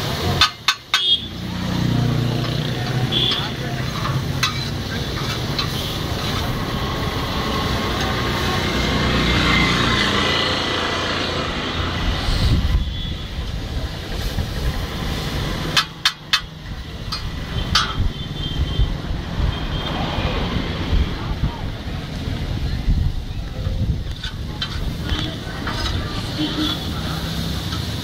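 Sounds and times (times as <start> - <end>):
noodles sizzling on a griddle: 0.0 - 9.4, 13.4 - 17.6, 24.8 - 28.0
street traffic: 0.0 - 28.0
sharp metal clacks: 0.2 - 1.2, 15.7 - 18.1
metal spatula scraping: 2.8 - 6.7, 24.3 - 27.9.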